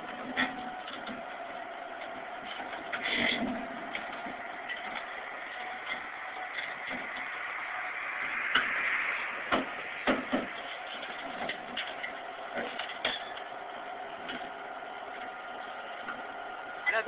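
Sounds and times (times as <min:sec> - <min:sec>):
backhoe running: 0:00.0 - 0:17.0
sharp irregular knocks and clanks: 0:09.5 - 0:13.5.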